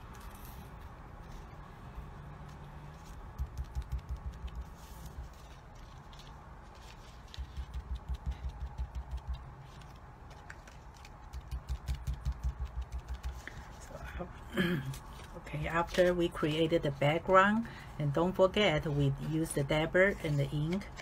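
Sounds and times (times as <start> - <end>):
ink dabber tapping on paper: 3.3 - 4.7, 7.4 - 9.5, 11.3 - 13.4
soft rustling: 4.4 - 8.5.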